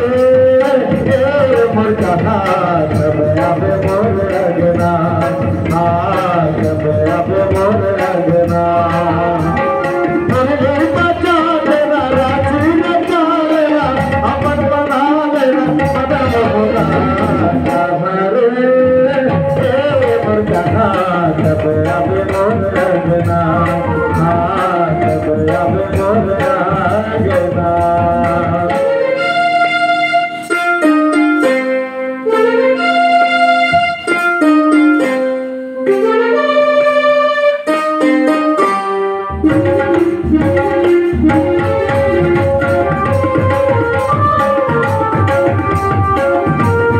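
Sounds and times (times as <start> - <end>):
hand drum rhythm: 0.0 - 18.0, 18.8 - 29.2, 39.3 - 46.9
man singing into microphone: 0.0 - 29.5
keyboard playing held notes: 0.0 - 46.9.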